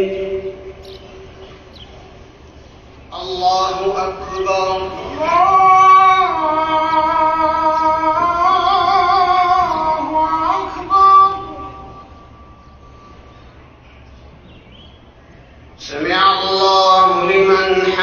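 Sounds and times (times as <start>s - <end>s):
man chanting melodically: 0.0s - 1.5s, 3.1s - 12.5s, 15.8s - 18.0s.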